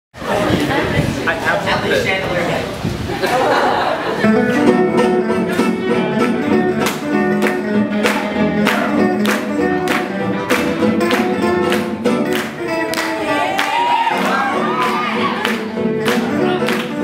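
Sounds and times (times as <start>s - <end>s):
acoustic string band swing music: 0.2s - 17.0s
guitars strumming: 4.2s - 17.0s.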